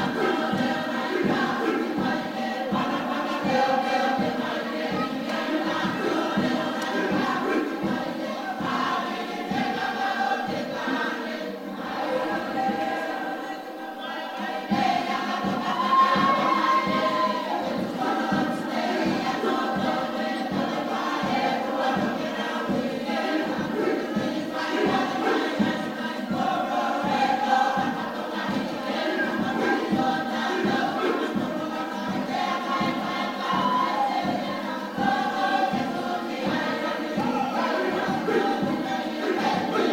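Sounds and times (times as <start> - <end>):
group singing and chanting: 0.0 - 39.9
steady low drum beat: 14.8 - 39.9.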